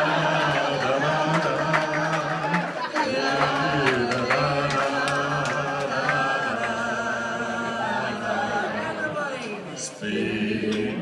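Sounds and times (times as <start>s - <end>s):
group singing unaccompanied: 0.0s - 11.0s.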